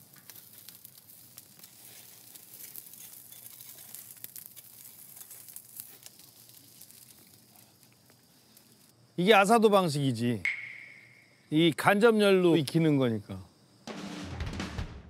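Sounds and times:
rake spreading coals: 0.0s - 10.1s
charcoal crackling: 0.0s - 10.6s.

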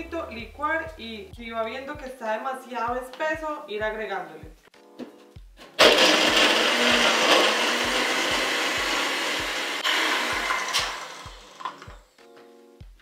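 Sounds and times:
blender blending ice: 5.8s - 12.0s.

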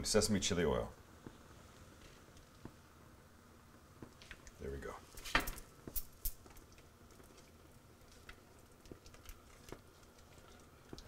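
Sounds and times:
spoon stirring in saucepan: 6.4s - 11.0s.

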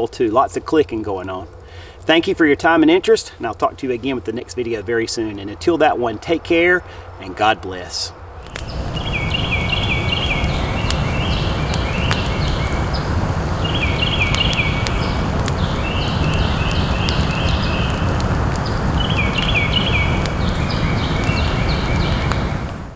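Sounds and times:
campfire crackling and popping: 0.0s - 6.8s, 7.4s - 22.9s
bird chirping: 8.5s - 22.7s.

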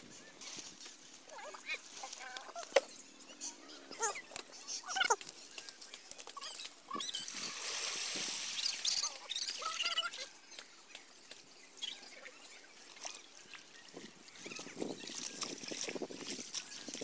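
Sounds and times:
dry twigs rustling: 0.4s - 2.9s, 5.1s - 8.9s
muddy water splashing: 6.6s - 17.0s.

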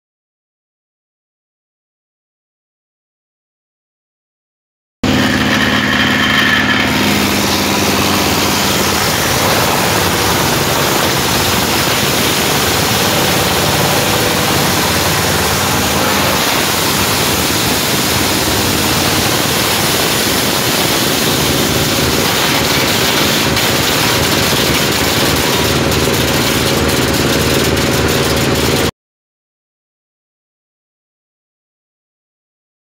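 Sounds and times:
wood crusher running: 5.0s - 28.9s.

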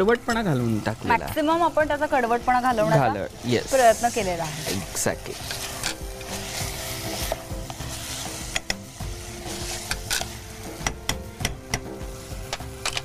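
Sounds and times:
food sizzling: 0.0s - 13.0s
spoon scraping a pot: 3.6s - 11.8s
spoon clinking against pot: 8.5s - 8.8s.

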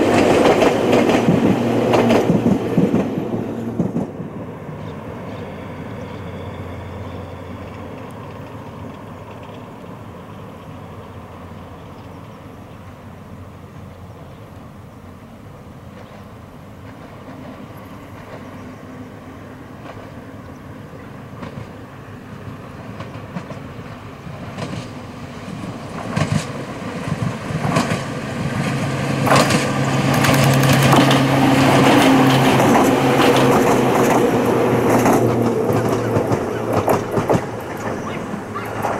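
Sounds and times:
wheels clacking over rail joints: 0.0s - 5.5s, 22.8s - 38.9s
electric train passing: 0.0s - 38.9s.

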